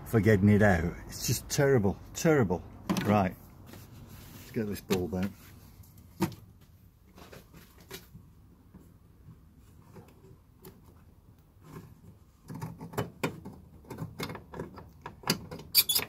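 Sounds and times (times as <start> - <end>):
plastic clicks and scrapes: 9.8 - 16.0.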